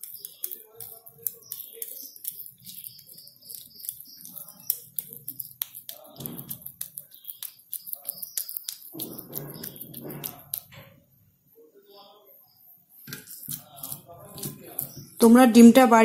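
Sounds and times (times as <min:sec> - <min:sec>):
hands squishing mashed potato: 0:00.0 - 0:10.8, 0:13.1 - 0:15.2.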